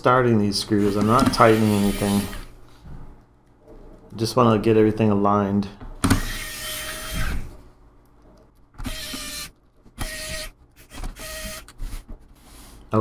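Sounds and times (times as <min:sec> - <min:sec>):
electric screwdriver whirring: 0:06.1 - 0:07.4, 0:08.8 - 0:11.8.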